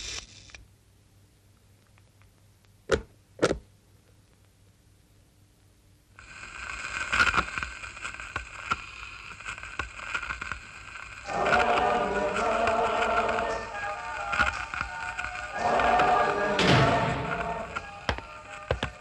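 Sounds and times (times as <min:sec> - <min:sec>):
scratchy whirring with crackles: 0:00.0 - 0:00.6, 0:06.2 - 0:16.6, 0:17.3 - 0:19.0
music: 0:11.3 - 0:19.0
sharp knocks: 0:16.6 - 0:18.9.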